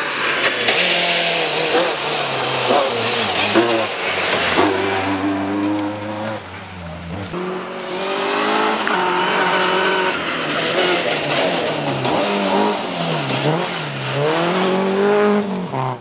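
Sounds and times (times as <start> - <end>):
rally car engine revving: 0.0 - 16.0.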